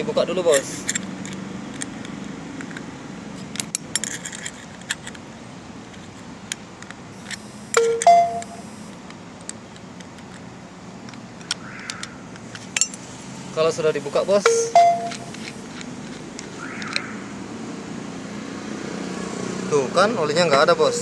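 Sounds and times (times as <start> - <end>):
spanner clicking and scraping on metal: 3.4 - 5.2
metallic clink ringing: 7.8 - 8.6, 12.8 - 13.0, 14.4 - 15.4.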